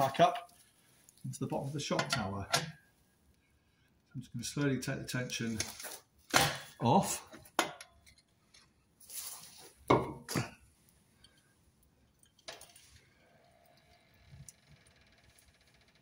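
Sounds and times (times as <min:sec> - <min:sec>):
scraping rustle: 0:09.0 - 0:09.8.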